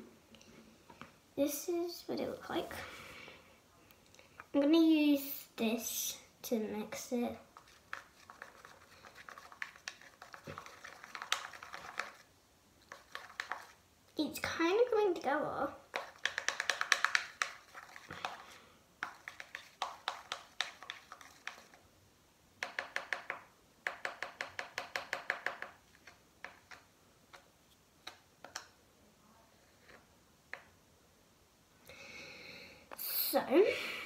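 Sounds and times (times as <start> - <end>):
slime stirred in plastic cup: 6.9 - 13.8, 15.7 - 21.9.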